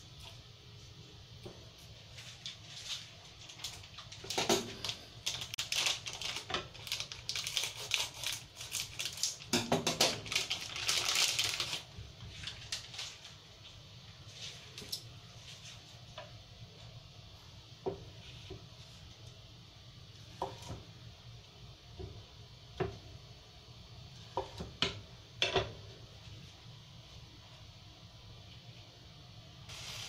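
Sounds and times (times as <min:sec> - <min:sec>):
plastic packaging crinkling: 0:02.1 - 0:13.5.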